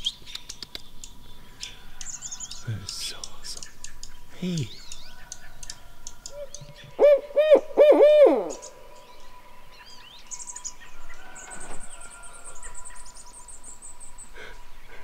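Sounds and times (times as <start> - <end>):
owl hooting: 4.3 - 9.0.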